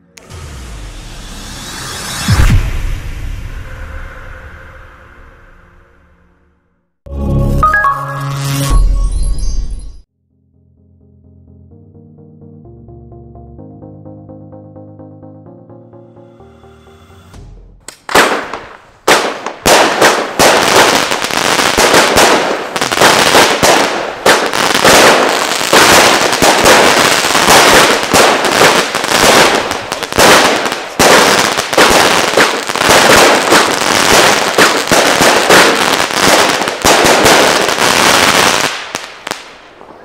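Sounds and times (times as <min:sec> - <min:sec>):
crackling fireworks: 0:17.9 - 0:40.0.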